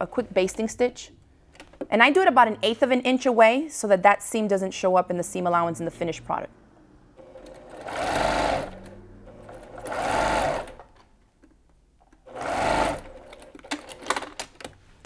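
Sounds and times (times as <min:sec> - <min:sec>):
sewing machine stitching: 0:07.2 - 0:11.0, 0:12.2 - 0:14.3.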